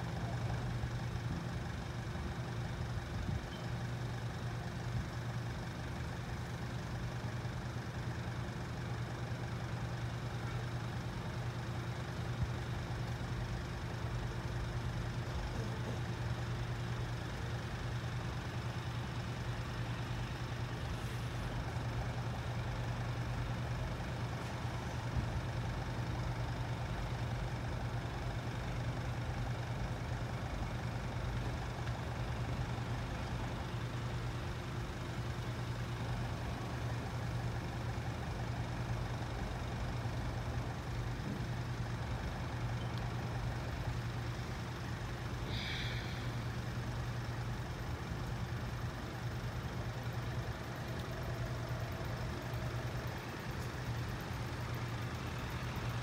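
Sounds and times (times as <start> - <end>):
vehicle engines idling: 0.0 - 56.0.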